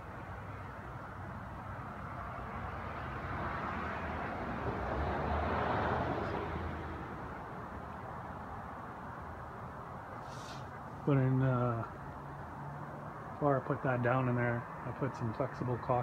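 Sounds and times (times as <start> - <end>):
vehicle passing by: 1.2 - 9.2.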